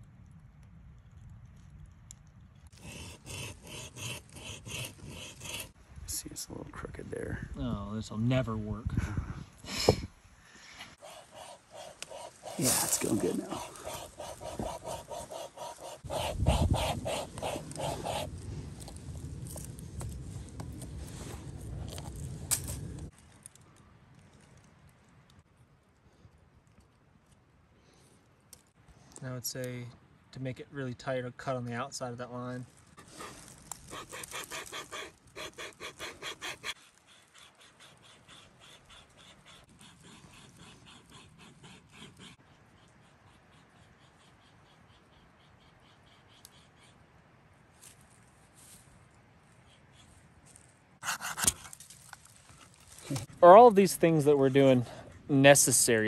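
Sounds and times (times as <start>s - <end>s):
wire saw rasping through wood: 2.8s - 5.8s, 11.0s - 18.4s, 33.0s - 40.6s
rubbing and handling noise: 11.0s - 23.5s.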